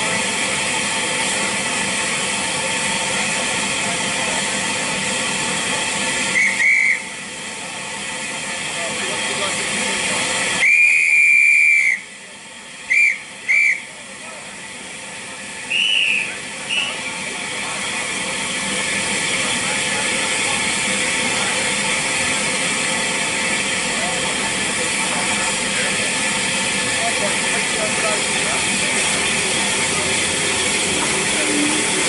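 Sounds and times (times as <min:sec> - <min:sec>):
steam hissing: 0:00.0 - 0:32.0
steam locomotive whistle: 0:06.2 - 0:07.2, 0:10.5 - 0:12.2, 0:12.9 - 0:14.0, 0:15.6 - 0:17.1.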